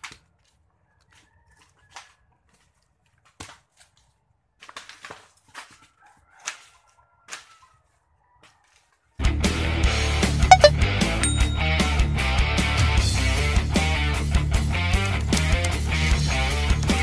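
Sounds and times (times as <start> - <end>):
twigs snapping and leaves rustling: 4.6 - 5.8.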